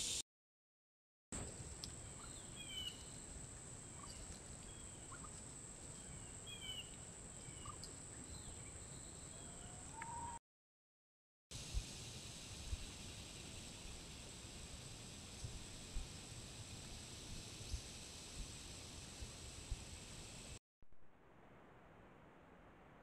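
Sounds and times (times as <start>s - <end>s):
steady high hiss: 0.0s - 0.2s, 11.6s - 20.6s
turkeys chirping: 3.9s - 5.4s, 7.5s - 7.9s.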